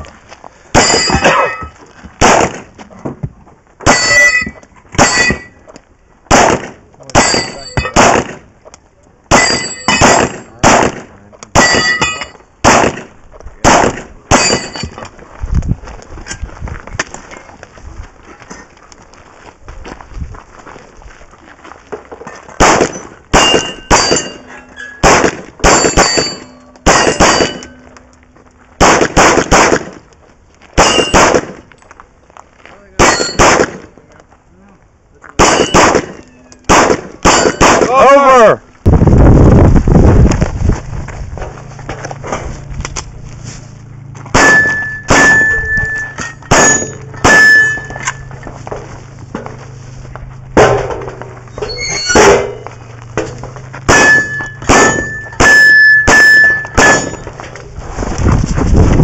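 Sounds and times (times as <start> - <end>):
pistol shots: 0.7 - 1.5, 2.2 - 2.7, 6.3 - 8.5, 9.3 - 14.8, 22.6 - 24.4, 25.0 - 27.7, 28.8 - 30.1, 30.8 - 31.7, 33.0 - 33.9, 35.4 - 38.0, 44.3 - 48.2, 53.8 - 57.3
steel targets ringing: 0.7 - 1.8, 3.8 - 5.6, 7.2 - 8.0, 9.3 - 10.6, 11.6 - 12.5, 14.3 - 15.0, 22.9 - 28.2, 30.8 - 31.3, 33.0 - 33.6, 35.4 - 38.5, 44.3 - 48.5, 50.6 - 57.4.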